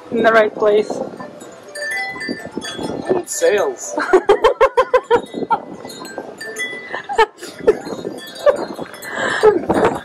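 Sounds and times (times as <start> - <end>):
man laughing heartily: 4.0 - 5.7, 6.9 - 10.0.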